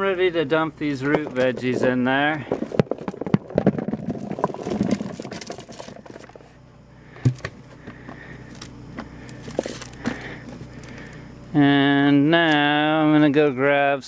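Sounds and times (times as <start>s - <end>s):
vegetables tumbling into plastic bucket: 0.8s - 6.4s.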